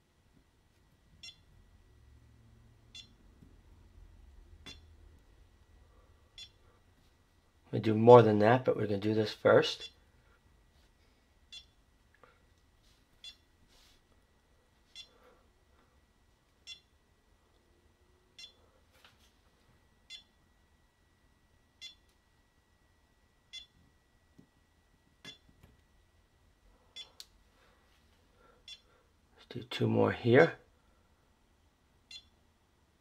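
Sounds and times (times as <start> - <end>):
short high beeps: 3.0 - 3.2.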